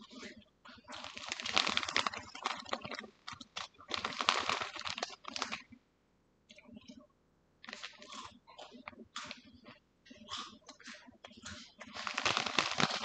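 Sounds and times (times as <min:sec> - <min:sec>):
crinkly rustling and crunching: 0:00.9 - 0:05.8, 0:07.6 - 0:09.4, 0:10.3 - 0:13.0.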